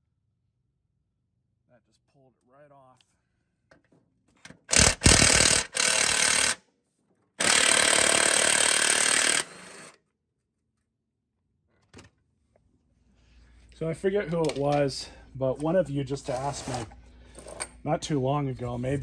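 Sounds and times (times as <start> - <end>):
impact driver hammering: 4.6 - 6.6, 7.4 - 9.8.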